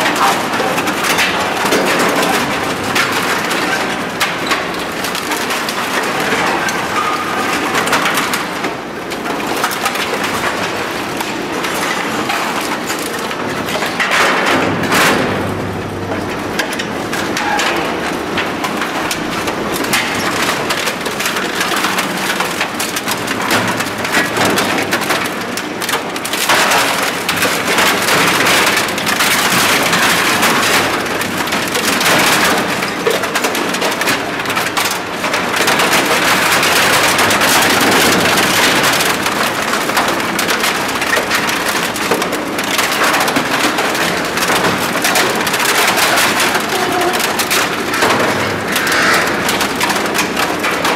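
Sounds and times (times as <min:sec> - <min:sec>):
auger crushing wood and plastic: 0:00.0 - 0:50.9.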